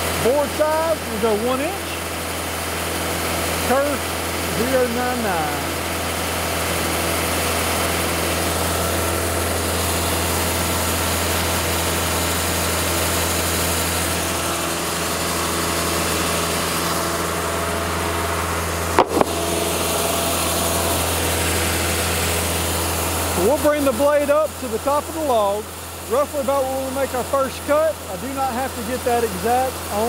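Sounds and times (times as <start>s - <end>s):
sawmill engine idling: 0.0s - 30.0s
sharp click: 19.0s - 19.4s.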